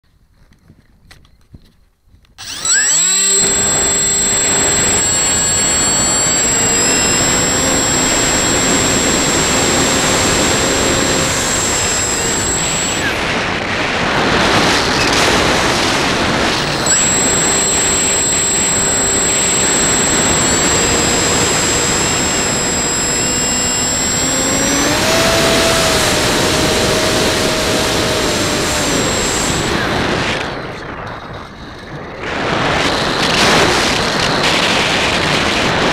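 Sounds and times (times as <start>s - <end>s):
electric motor and propeller whine: 2.4s - 30.9s.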